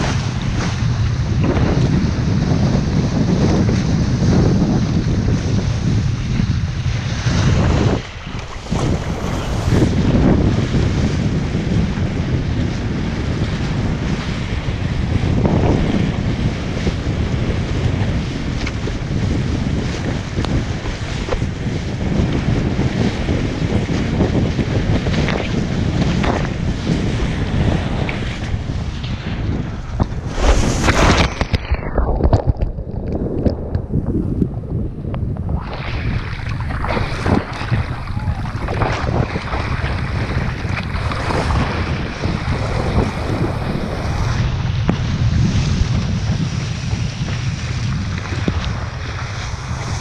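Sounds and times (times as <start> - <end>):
water rushing under a board: 0.0 - 50.0
wind buffeting microphone: 0.0 - 50.0
loud splash: 7.6 - 10.5, 29.2 - 32.7, 35.5 - 44.4.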